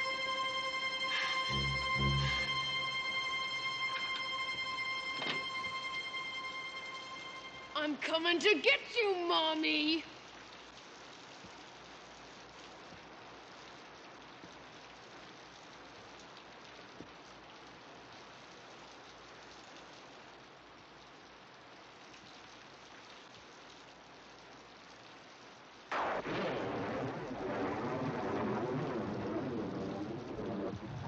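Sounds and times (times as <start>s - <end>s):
sudden loud noise: 0.0s - 7.7s
rain hissing: 0.0s - 31.0s.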